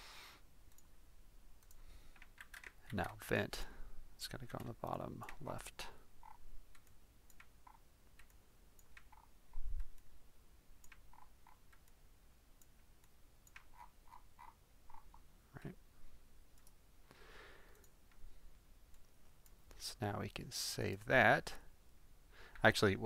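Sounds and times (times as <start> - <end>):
computer mouse clicking: 1.6 - 3.0, 6.2 - 10.1, 10.8 - 12.0, 13.4 - 15.1, 17.7 - 18.2.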